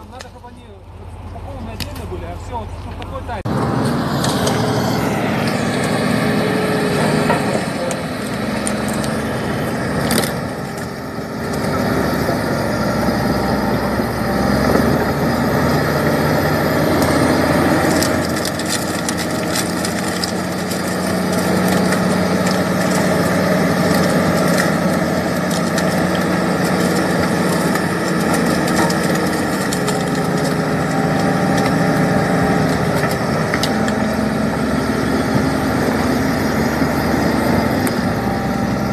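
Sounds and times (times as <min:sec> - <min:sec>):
bulldozer diesel engine running: 0:00.0 - 0:38.9
packaging cracking: 0:17.0 - 0:34.0.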